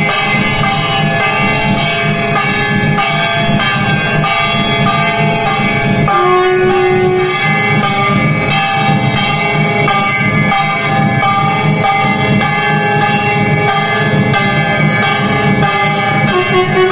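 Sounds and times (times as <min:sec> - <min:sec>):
bells ringing: 0:00.0 - 0:16.9
long held note: 0:06.1 - 0:07.7, 0:16.3 - 0:16.9.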